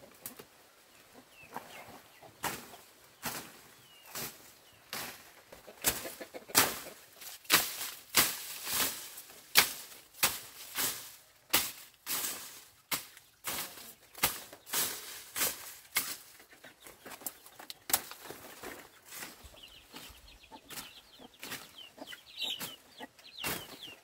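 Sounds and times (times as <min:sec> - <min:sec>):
leaves rustling: 0:00.0 - 0:24.0
machete swishing through stalks: 0:02.4 - 0:16.4.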